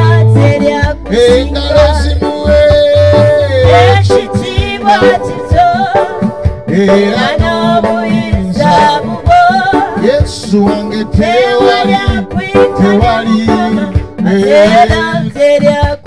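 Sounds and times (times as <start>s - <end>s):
instrumental backing with steady beat: 0.0s - 16.0s
man singing into a microphone: 0.0s - 16.0s.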